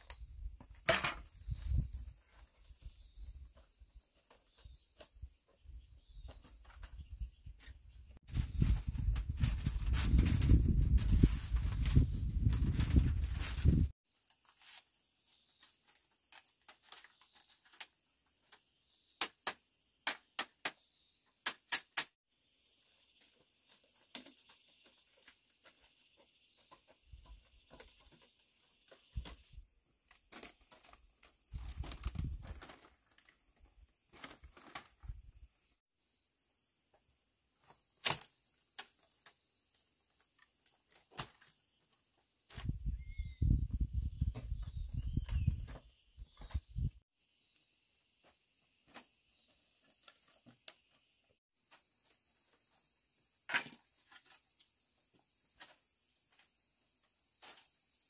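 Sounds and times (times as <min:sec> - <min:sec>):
insects chirring: 0:00.0 - 0:58.0
bamboo strips clicking: 0:21.4 - 0:22.1.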